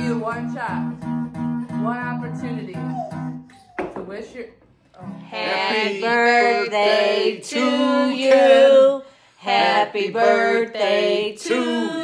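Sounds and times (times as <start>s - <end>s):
voices singing unaccompanied: 5.2s - 12.0s.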